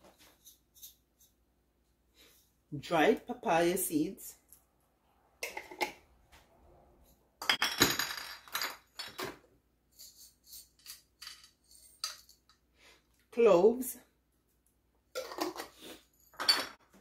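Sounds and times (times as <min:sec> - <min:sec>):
glass jars clinking: 0:07.4 - 0:09.4, 0:16.3 - 0:16.8.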